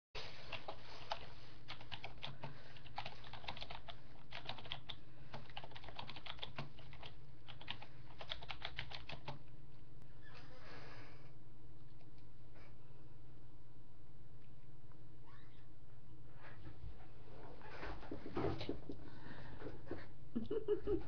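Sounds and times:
typing on computer keyboard: 0.5 - 9.4.

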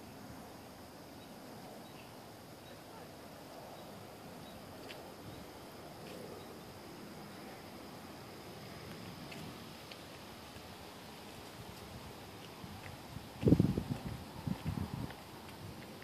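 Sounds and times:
steady hiss: 0.0 - 16.0
faint high chirps: 1.1 - 3.1.

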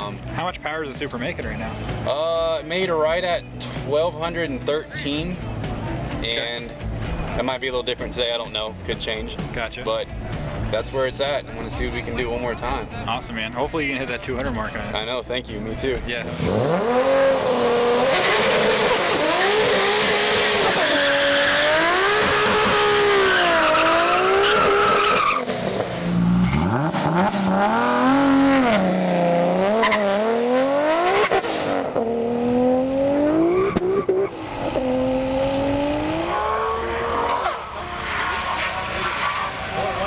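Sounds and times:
car engine revving: 16.0 - 40.0.

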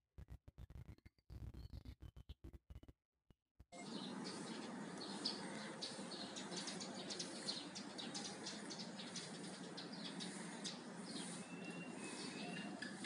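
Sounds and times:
high bird chirps: 3.8 - 13.0.

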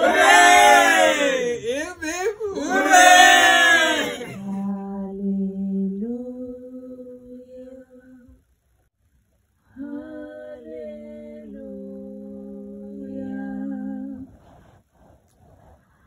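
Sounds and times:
women singing held notes: 0.0 - 1.6, 9.7 - 14.3.

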